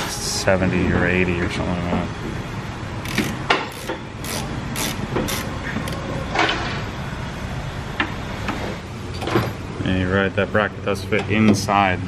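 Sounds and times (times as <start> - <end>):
low shop hum: 0.0 - 12.0
ratchet wrench clicking: 3.0 - 6.0.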